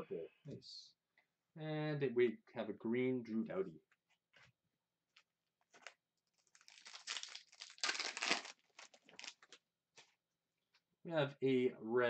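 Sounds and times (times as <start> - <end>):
plastic wrapper crinkling: 5.7 - 10.2.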